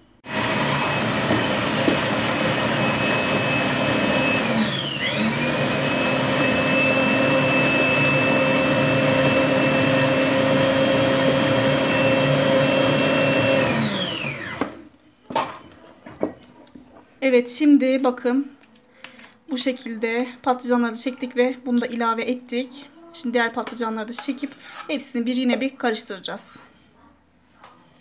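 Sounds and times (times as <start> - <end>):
food processor motor whining: 0.2 - 14.9.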